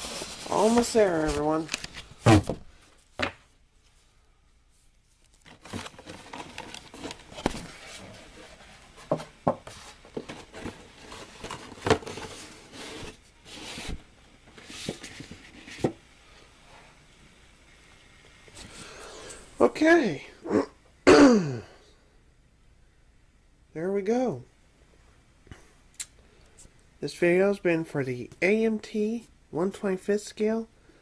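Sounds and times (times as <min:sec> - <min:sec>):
plastic bags and cardboard rustling: 0:00.0 - 0:16.0.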